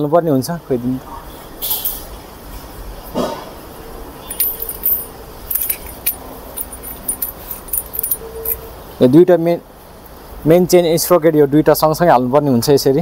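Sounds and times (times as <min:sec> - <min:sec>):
chain links clinking: 0:04.2 - 0:08.8.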